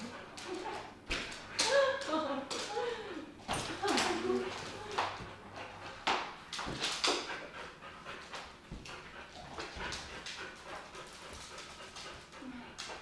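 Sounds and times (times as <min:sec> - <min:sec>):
dog panting hard: 0:04.2 - 0:13.0.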